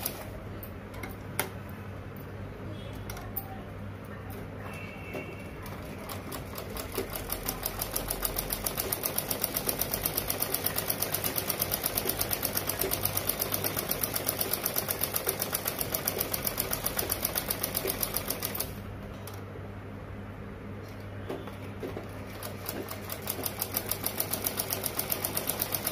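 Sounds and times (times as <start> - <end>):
sewing machine clatter: 5.3 - 18.7, 21.3 - 25.9.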